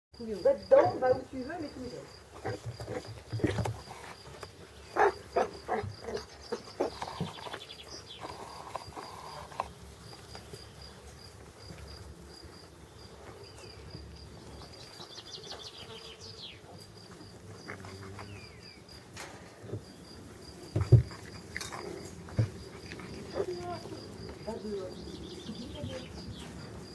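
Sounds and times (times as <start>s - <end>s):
puppies scuffling in grass: 20.6s - 26.9s.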